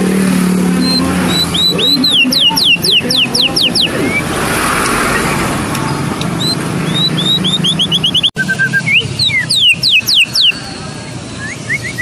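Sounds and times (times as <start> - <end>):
bird singing clear whistles: 0.8 - 4.3, 6.4 - 10.6, 11.4 - 12.0.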